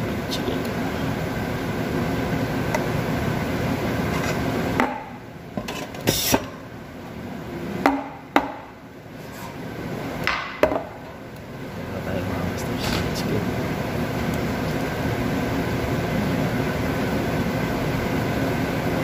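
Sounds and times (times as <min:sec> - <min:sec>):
espresso machine running: 0:11.4 - 0:19.0.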